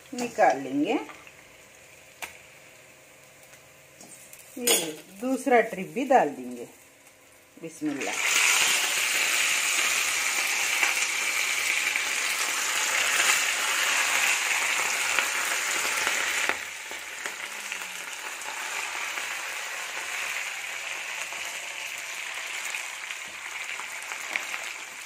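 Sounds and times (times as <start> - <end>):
fish deep-frying in oil: 7.8 - 25.0.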